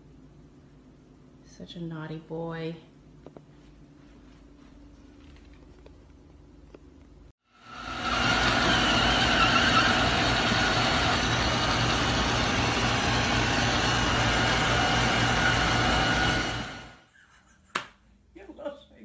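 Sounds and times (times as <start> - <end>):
robot vacuum cleaner running: 7.5 - 17.0.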